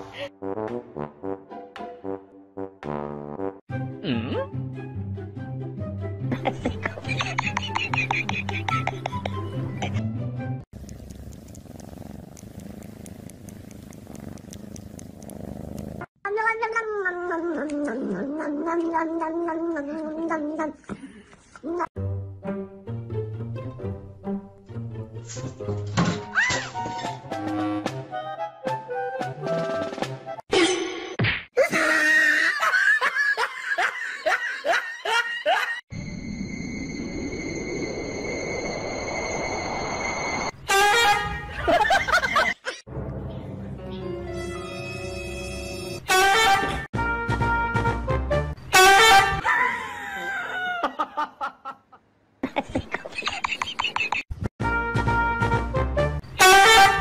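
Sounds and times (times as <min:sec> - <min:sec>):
laughter: 0:06.3 - 0:10.0, 0:31.7 - 0:35.8, 0:41.5 - 0:42.9, 0:49.4 - 0:54.3
cat purring: 0:10.8 - 0:16.1.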